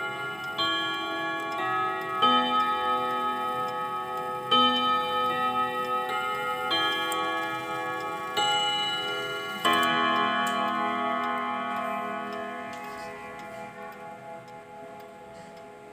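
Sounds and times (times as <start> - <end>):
clock chime rods ringing: 0.0 - 15.9.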